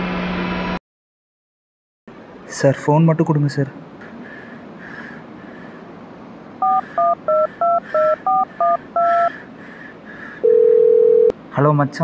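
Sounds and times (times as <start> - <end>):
touch-tone keypad beeps: 6.6 - 9.3.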